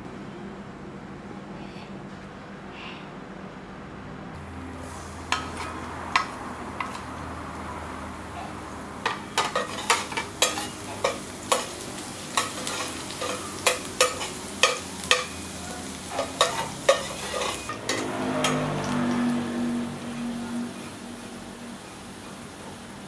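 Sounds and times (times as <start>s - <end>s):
garlic sizzling in a pot: 4.5s - 23.0s.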